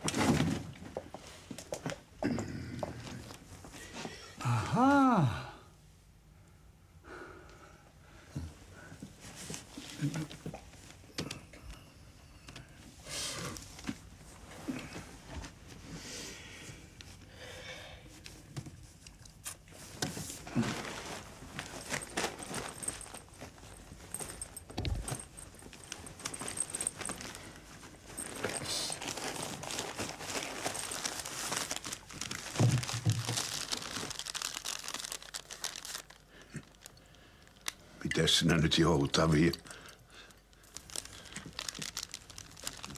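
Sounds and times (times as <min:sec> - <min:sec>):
paper crinkling and rustling: 0:18.9 - 0:37.7, 0:40.6 - 0:42.9.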